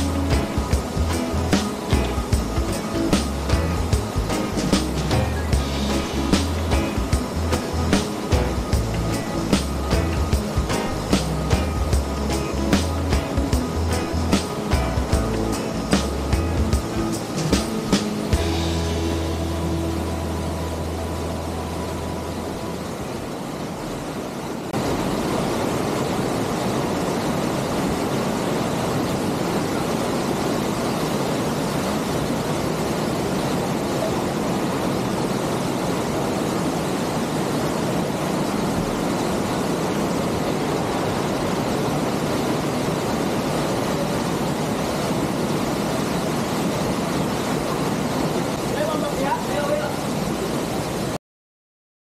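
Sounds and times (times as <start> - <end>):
background music: 0.0 - 23.3
waterfall rushing: 0.0 - 51.2.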